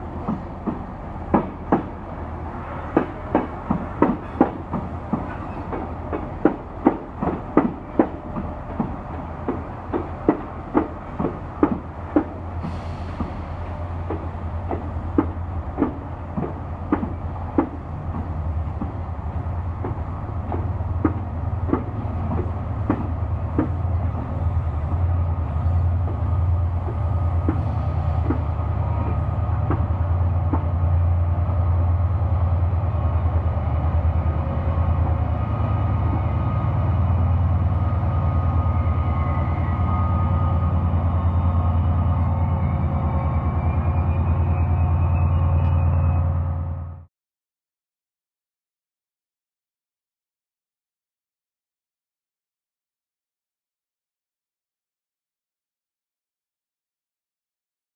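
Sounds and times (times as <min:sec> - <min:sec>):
diesel locomotive drone: 0:00.0 - 0:47.1
train wheels clicking over rail joints: 0:00.1 - 0:02.0, 0:02.8 - 0:31.0.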